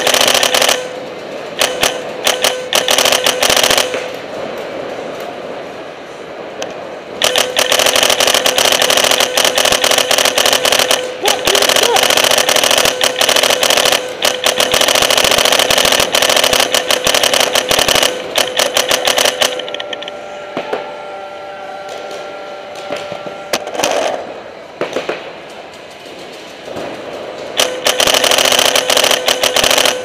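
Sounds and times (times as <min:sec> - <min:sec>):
paintball markers firing: 0:07.2 - 0:19.8, 0:27.6 - 0:30.0.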